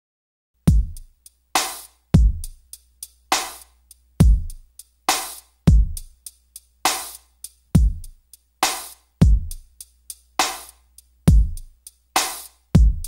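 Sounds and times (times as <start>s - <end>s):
hi-hat ticks: 0.6s - 13.0s
kick drum hits: 0.7s - 1.0s
snare or clap hits: 1.6s - 2.0s, 3.3s - 3.7s, 5.1s - 5.4s, 6.9s - 7.2s, 8.6s - 9.0s, 10.4s - 10.8s, 12.2s - 12.5s.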